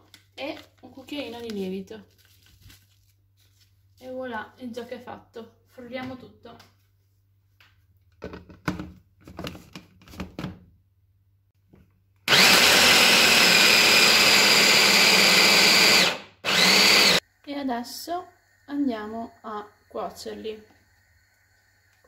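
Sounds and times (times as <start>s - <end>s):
electric mini chopper whining: 12.3s - 17.2s.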